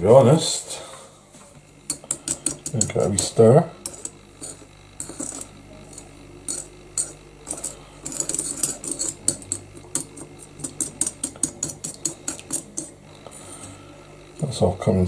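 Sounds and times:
spoon clinking in ceramic bowl: 1.9s - 12.9s.

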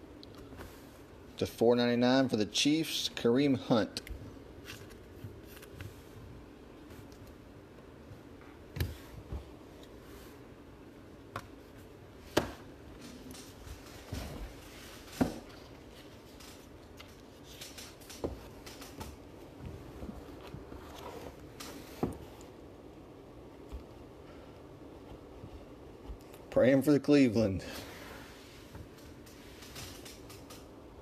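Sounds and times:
low steady hum: 0.0s - 31.0s
cards shuffling: 4.6s - 6.0s.

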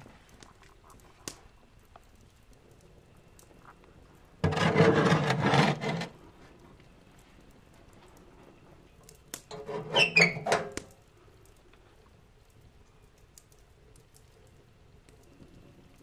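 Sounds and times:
metal oven door clanking and scraping: 4.4s - 6.1s, 9.5s - 10.8s
metal squeak: 9.5s - 10.8s.

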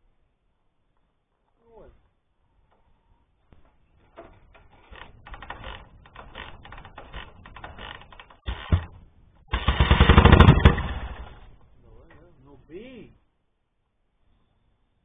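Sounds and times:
motorcycle kickstarter clatter: 4.0s - 11.4s.

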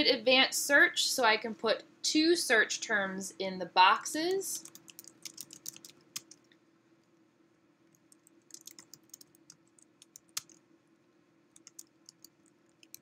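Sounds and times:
faint low hum: 0.0s - 13.0s
faint keyboard typing: 4.3s - 7.2s, 7.8s - 10.7s, 11.5s - 13.0s.

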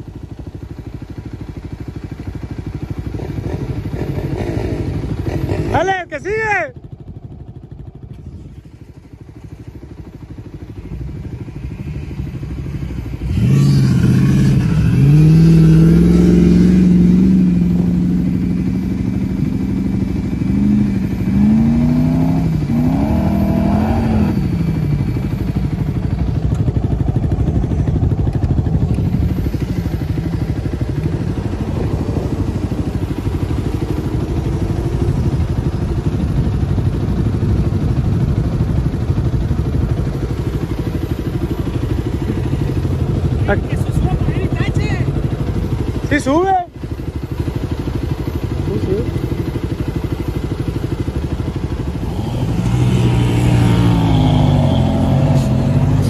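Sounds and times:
off-road vehicle engine revving: 3.1s - 6.2s, 13.1s - 25.5s, 51.7s - 56.0s.

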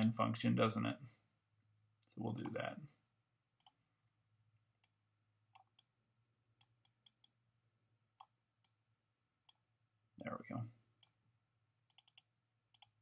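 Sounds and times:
computer mouse clicking: 3.6s - 3.8s, 4.8s - 5.9s, 6.6s - 7.4s, 11.9s - 13.0s.

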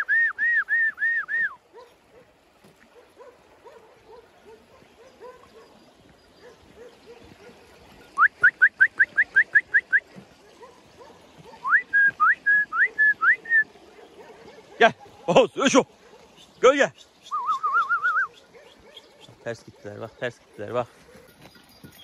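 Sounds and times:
person whistling: 0.0s - 1.6s, 11.6s - 13.6s, 17.3s - 18.3s.

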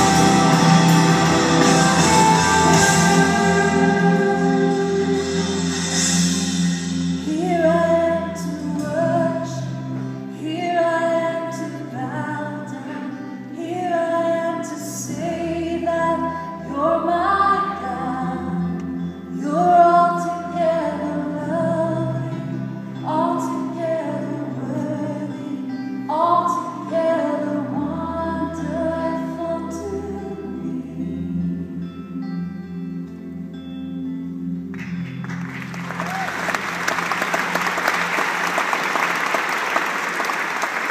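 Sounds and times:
woman singing into microphone: 0.0s - 6.1s, 7.2s - 31.5s
bass line: 0.0s - 8.8s
live band playing: 0.0s - 8.9s, 34.8s - 40.9s.

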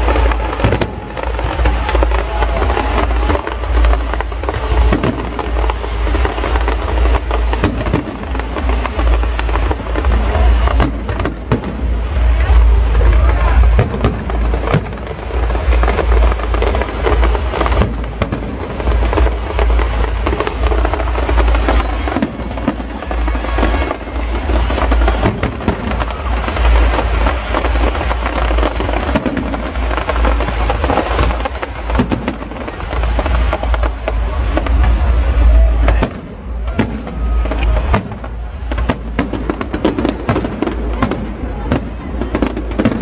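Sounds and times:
low rumble: 0.0s - 42.3s
fireworks bangs and crackles: 0.0s - 43.0s.

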